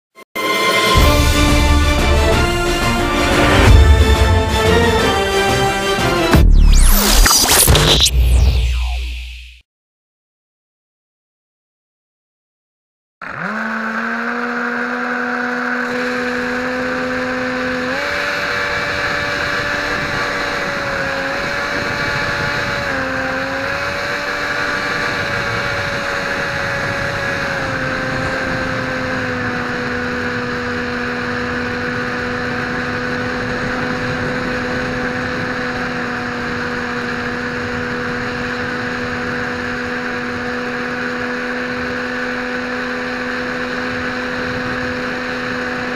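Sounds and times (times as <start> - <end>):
propeller air rush: 0.4 - 9.6, 14.0 - 45.9
electric motor whine: 13.2 - 45.9.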